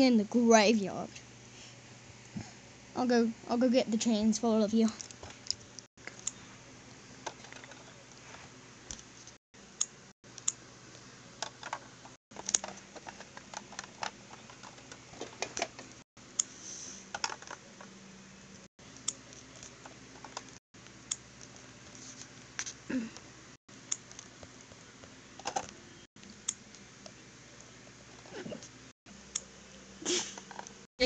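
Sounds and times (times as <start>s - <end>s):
plastic toys clicking and tapping: 7.2s - 7.9s, 11.4s - 15.9s, 17.1s - 17.7s.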